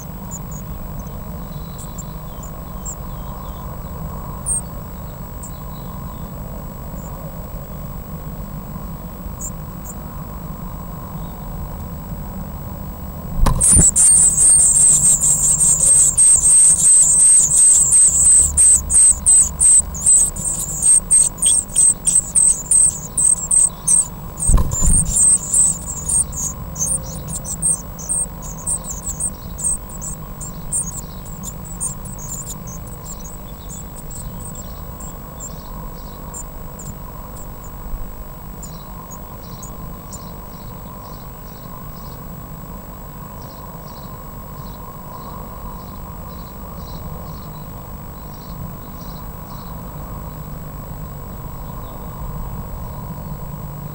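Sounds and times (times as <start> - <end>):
dull thump: 13.3 - 14.0, 24.5 - 25.2
nestlings cheeping: 13.4 - 40.4.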